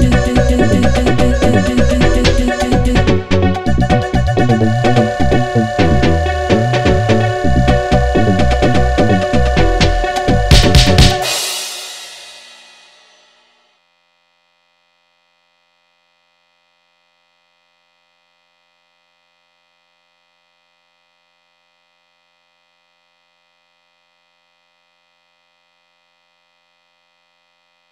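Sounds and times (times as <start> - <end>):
house music hit: 0.0 - 13.4.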